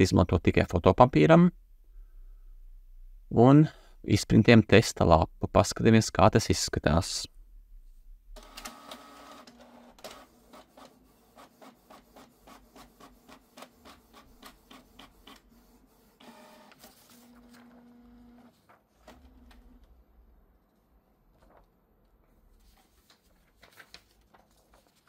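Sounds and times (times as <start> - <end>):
printer motor whine: 16.2 - 18.5.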